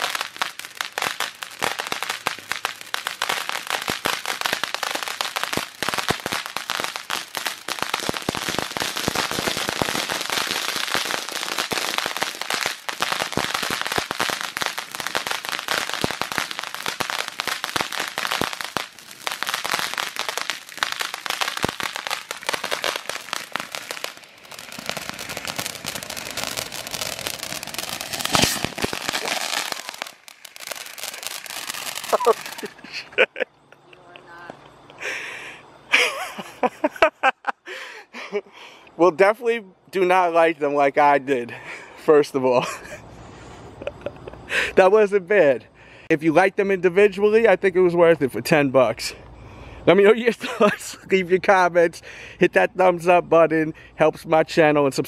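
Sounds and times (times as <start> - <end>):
sharp firework crack: 0.0 - 33.2
fireworks fountain hissing: 0.0 - 39.4, 40.0 - 48.0
fireworks crackling: 0.0 - 55.0.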